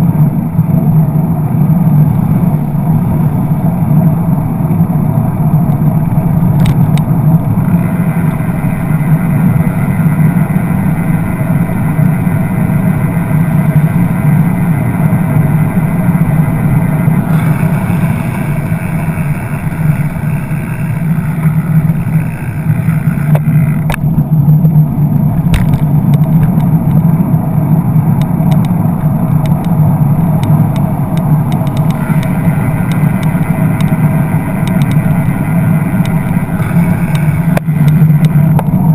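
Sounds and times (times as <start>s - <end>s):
bus engine running: 0.0s - 38.9s
slow road traffic rumble: 0.0s - 38.9s
sharp clicks: 6.6s - 7.1s, 25.2s - 27.0s, 28.2s - 28.8s, 29.4s - 38.8s.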